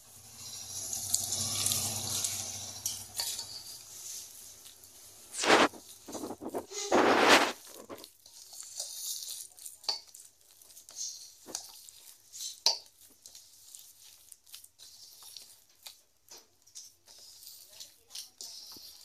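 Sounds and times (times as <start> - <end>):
dough squishing: 0.0 - 19.0
clinks against steel bowl: 1.6 - 3.9.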